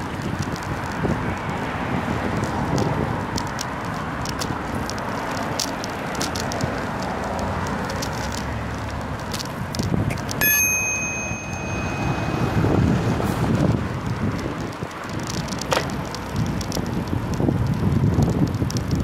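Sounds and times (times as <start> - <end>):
road and wind noise: 0.0 - 19.0
bicycle bell ringing: 10.4 - 13.6.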